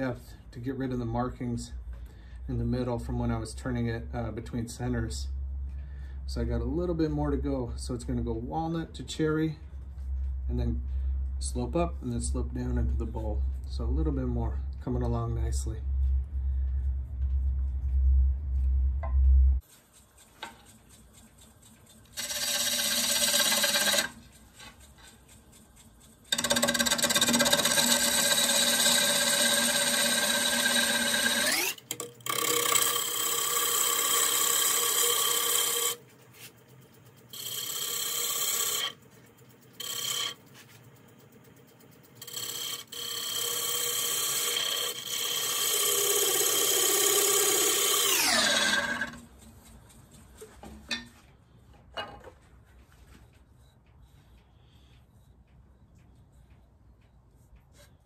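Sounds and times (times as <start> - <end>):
low thumping: 9.6 - 19.6
gouge cutting wood on a lathe: 20.0 - 25.2, 26.2 - 36.5, 37.2 - 40.7, 42.1 - 49.2.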